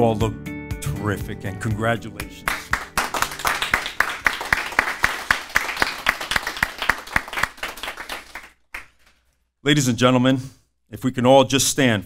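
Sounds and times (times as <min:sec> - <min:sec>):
audience applauding: 0:02.4 - 0:09.1.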